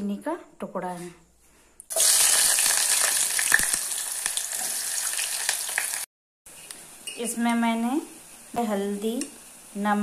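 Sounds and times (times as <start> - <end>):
oil crackling: 1.9 - 6.1
food sizzling in hot oil: 1.9 - 10.0.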